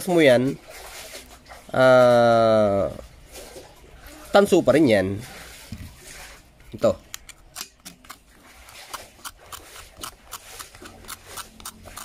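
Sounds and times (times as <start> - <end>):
knife scraping copper braid: 7.6 - 12.0.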